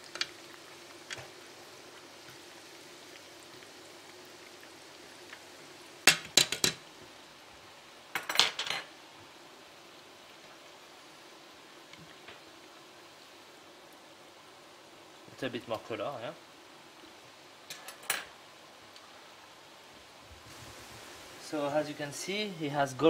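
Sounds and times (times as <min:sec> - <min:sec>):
pastries sizzling in oil: 0:00.0 - 0:23.0
metal utensils clinking on pan: 0:08.2 - 0:08.9, 0:17.7 - 0:18.3.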